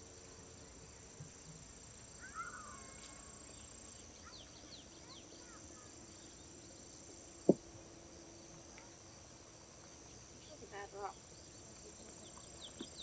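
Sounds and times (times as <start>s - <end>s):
insects chirring: 0.0s - 13.0s
bird chirps: 2.2s - 7.5s.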